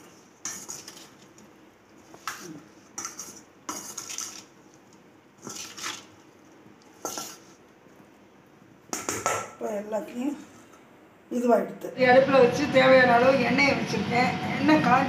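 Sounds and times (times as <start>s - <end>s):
spoon scraping a steel bowl: 0.4s - 1.2s, 3.0s - 4.5s, 7.0s - 7.6s.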